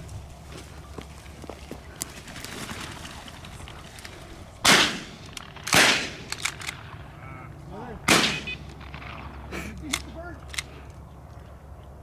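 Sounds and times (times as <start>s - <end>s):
shotgun shots with echo: 4.6s - 6.9s, 8.1s - 9.3s.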